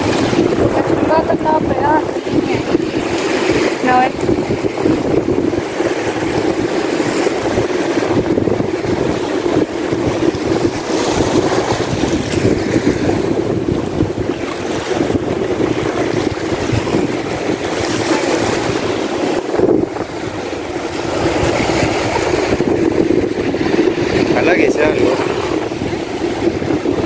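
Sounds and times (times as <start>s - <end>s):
small waves breaking on sand: 0.0s - 27.0s
wind buffeting microphone: 0.0s - 27.0s.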